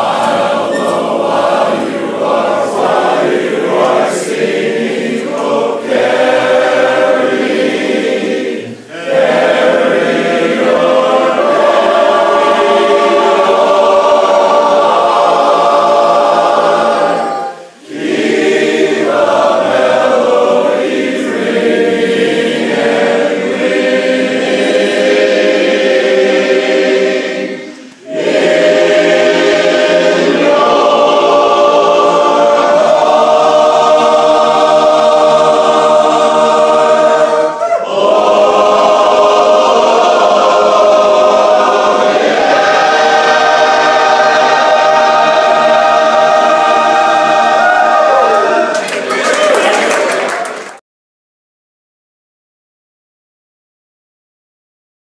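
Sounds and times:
voices singing barbershop harmony: 0.0s - 50.4s.

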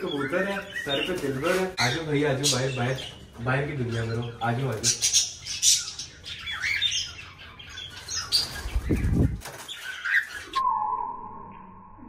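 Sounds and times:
parrots chirping: 0.0s - 10.6s
wings flapping: 8.2s - 10.6s.

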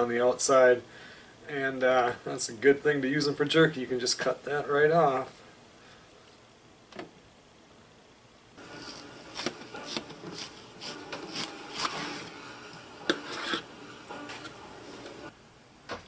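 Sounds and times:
knife slicing frozen meat: 8.7s - 12.4s.

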